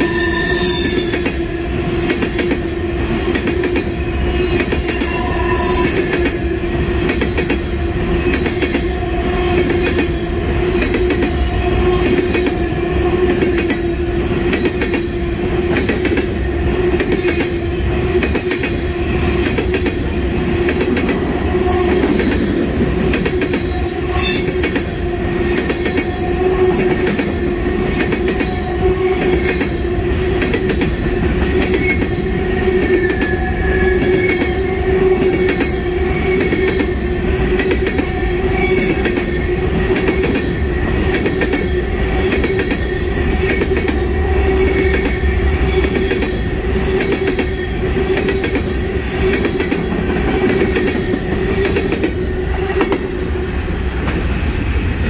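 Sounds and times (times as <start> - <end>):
train wheels rumbling on rails: 0.0 - 55.0
clickety-clack over rail joints: 0.9 - 5.1, 5.8 - 54.6.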